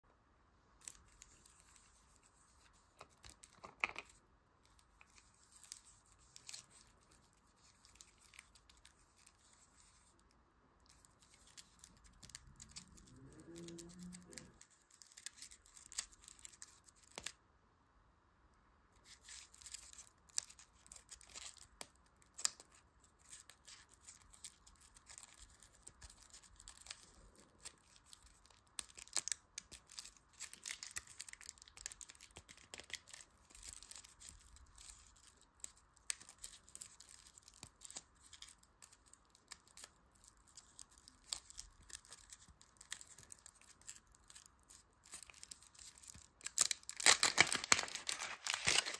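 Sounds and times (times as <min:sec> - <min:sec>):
foil wrapper crinkling: 0:11.0 - 0:17.4, 0:19.0 - 0:48.9.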